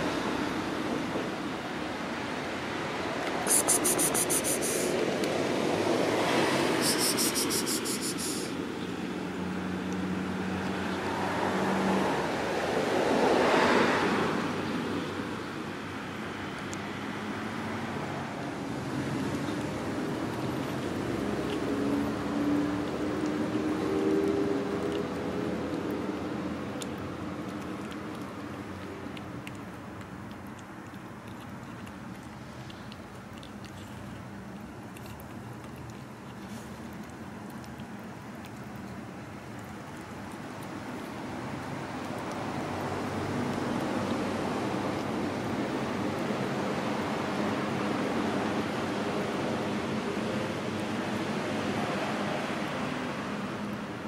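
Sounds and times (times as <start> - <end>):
steady low street hum: 0.0 - 54.0
vehicle passing: 2.5 - 54.0
kitten chewing wet food: 3.2 - 12.6, 14.4 - 54.0.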